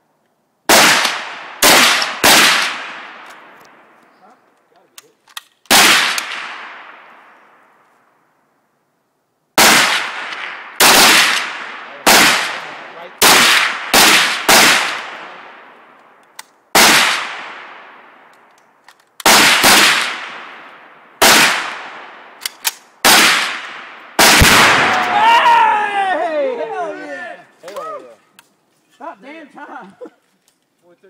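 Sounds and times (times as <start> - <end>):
gunshots with echo: 0.7 - 3.2, 9.6 - 15.7, 16.8 - 18.1, 19.2 - 20.6, 21.2 - 22.4, 23.0 - 25.2.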